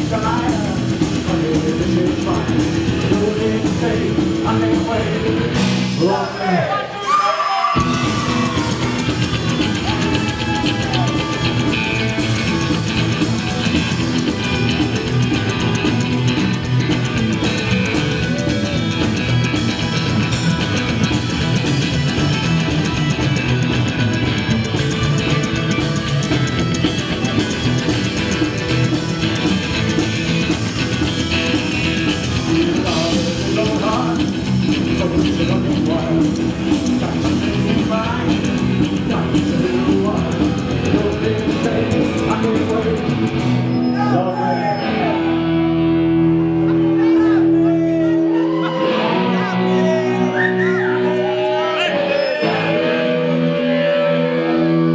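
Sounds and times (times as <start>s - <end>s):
live rockabilly band playing: 0.0s - 7.0s, 7.8s - 54.9s
person singing: 32.2s - 43.4s, 48.2s - 54.9s.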